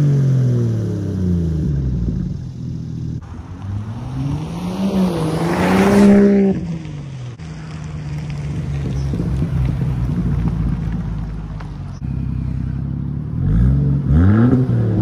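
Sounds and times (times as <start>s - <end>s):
car exhaust accelerating: 0.0s - 15.0s
low engine drone: 9.6s - 15.0s.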